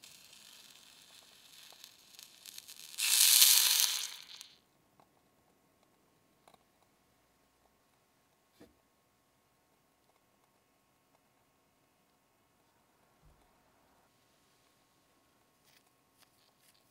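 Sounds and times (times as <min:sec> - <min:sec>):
faint crackling from pan: 0:00.0 - 0:04.5
water hissing in hot saucepan: 0:00.0 - 0:04.5.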